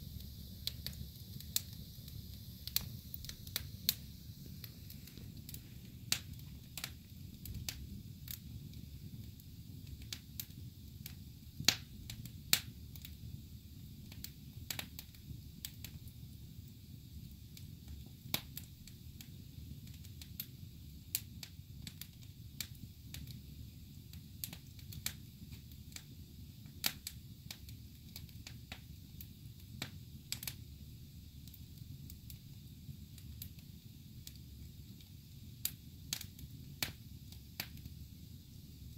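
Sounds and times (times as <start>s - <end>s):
logs crackling in a fireplace: 0.0s - 38.9s
sharp pops of fire: 0.1s - 30.8s, 31.4s - 38.9s.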